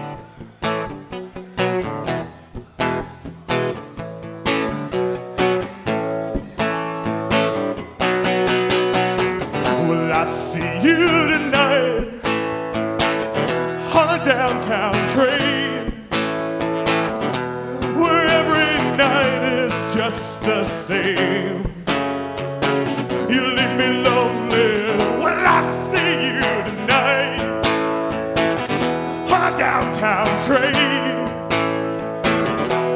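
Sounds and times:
guitar strummed: 0.0s - 32.9s
man singing: 9.4s - 16.3s, 17.6s - 22.1s, 22.7s - 32.9s.

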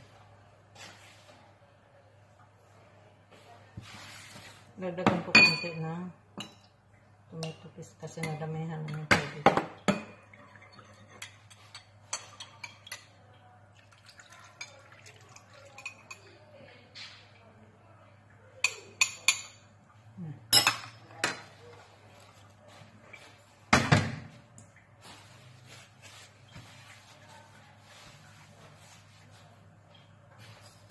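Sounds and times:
sauce pouring: 13.8s - 15.8s.

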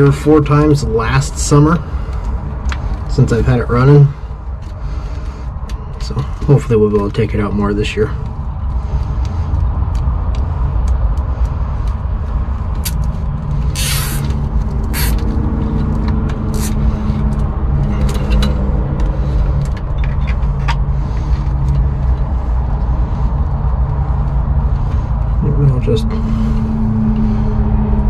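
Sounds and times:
steady low rumble: 0.0s - 28.0s
wire connectors clicking and rustling: 4.6s - 25.1s
short rasp: 13.7s - 14.3s.

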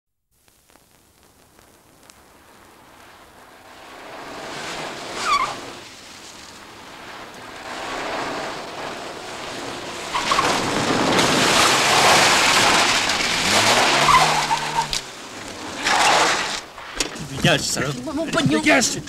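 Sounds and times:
tyres skidding on asphalt: 2.4s - 19.0s
car engine revving: 2.7s - 18.0s
tyre squeals: 5.1s - 5.8s, 10.1s - 16.6s.

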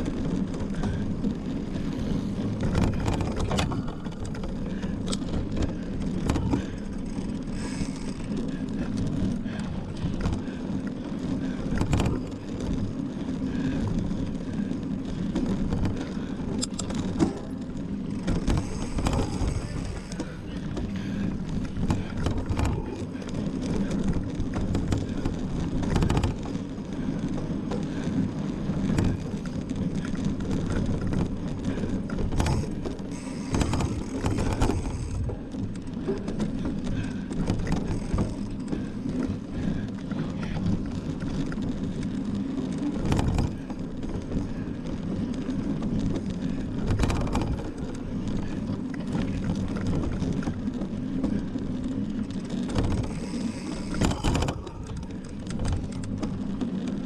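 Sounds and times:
bike rattling over bumps: 0.0s - 57.0s
mountain bike tyres rumbling: 0.0s - 57.0s.

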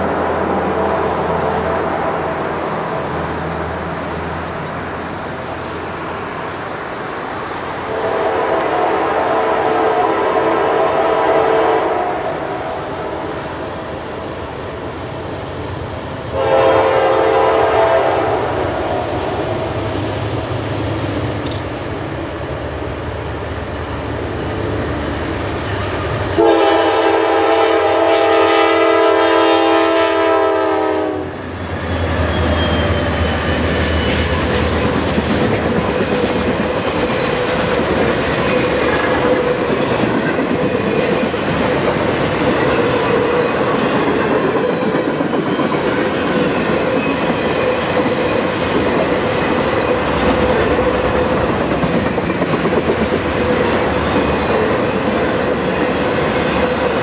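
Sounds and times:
locomotive engines rumbling: 0.0s - 57.0s
train horn chord: 7.9s - 12.9s, 16.3s - 19.0s, 26.4s - 31.4s
train wheels clickety-clack: 31.6s - 57.0s.

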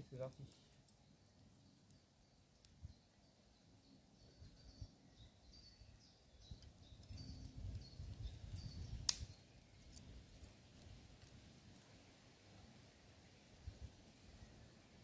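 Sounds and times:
small bird chirping: 0.1s - 10.1s
sharp snap: 9.1s - 9.3s.

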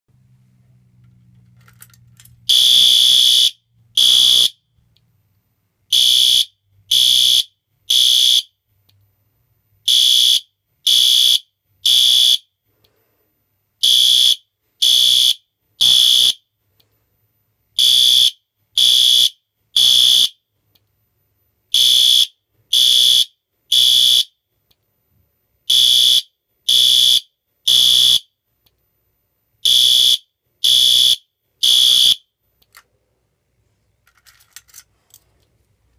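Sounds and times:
fire alarm horn beeping: 2.5s - 4.6s, 5.9s - 8.6s, 9.8s - 12.5s, 13.8s - 16.4s, 17.8s - 20.4s, 21.7s - 24.4s, 25.7s - 28.3s, 29.6s - 32.3s.

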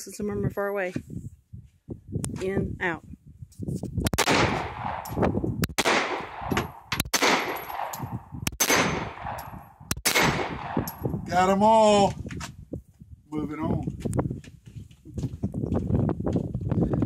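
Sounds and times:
handgun shots: 4.1s - 11.0s.

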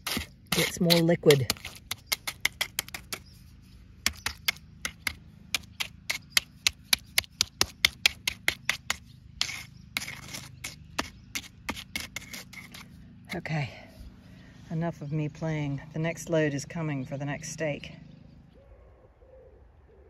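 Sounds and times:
trowel patting wet concrete: 0.0s - 3.2s, 4.0s - 12.9s.

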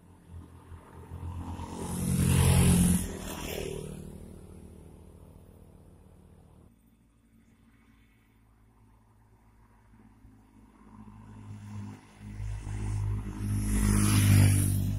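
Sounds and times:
motorcycles riding past: 0.0s - 6.8s, 9.7s - 14.9s.

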